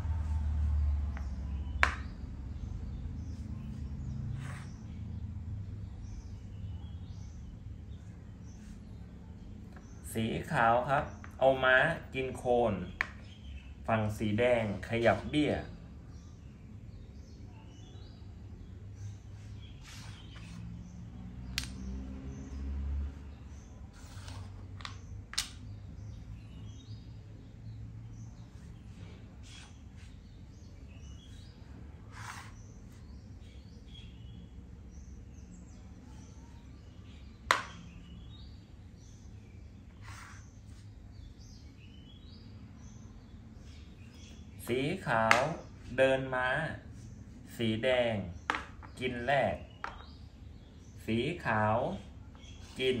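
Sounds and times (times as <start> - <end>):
chess piece tapping on board: 1.2 - 2.1, 37.5 - 37.8
sharp click: 21.5 - 21.8.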